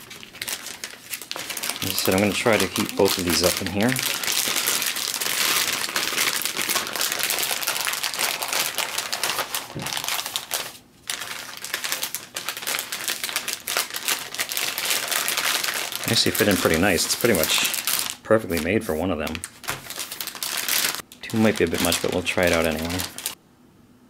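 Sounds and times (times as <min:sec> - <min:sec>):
plastic bag crinkling: 0:00.0 - 0:23.4.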